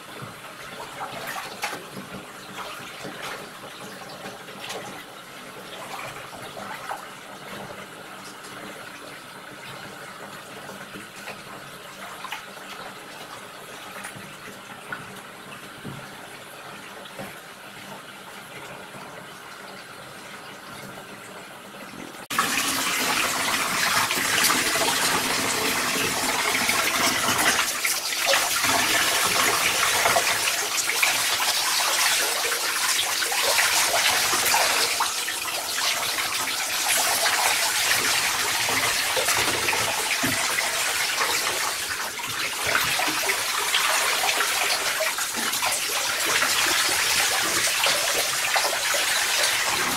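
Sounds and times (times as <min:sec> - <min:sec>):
faint water in bathtub: 0:00.0 - 0:49.9
shower spraying water: 0:22.3 - 0:49.9.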